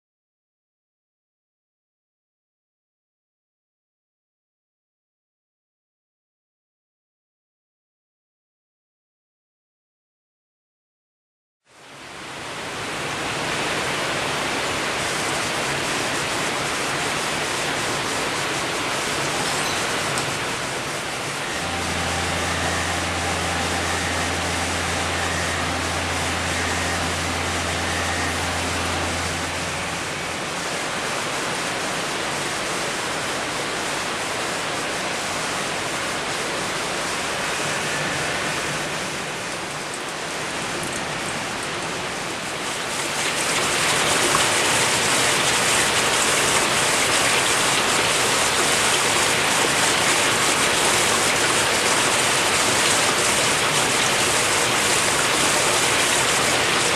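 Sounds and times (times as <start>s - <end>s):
water rushing into tanks: 11.8s - 56.9s
low electric hum: 18.8s - 33.7s.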